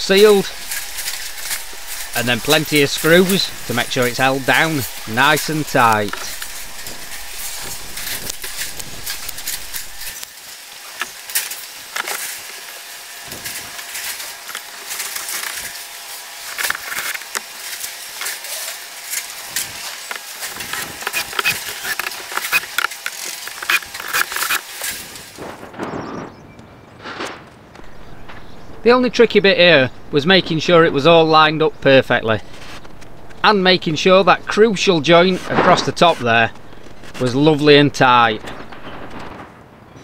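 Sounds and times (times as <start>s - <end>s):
cordless drill driving screws: 20.1s - 25.3s.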